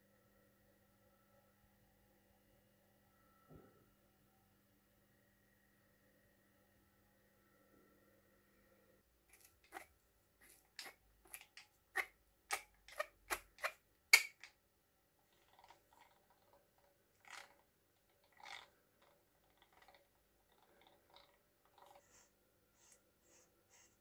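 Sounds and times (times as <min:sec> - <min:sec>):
hand drill gears clicking: 0:17.2 - 0:17.6, 0:18.3 - 0:18.7
faint scrapes: 0:18.2 - 0:24.0.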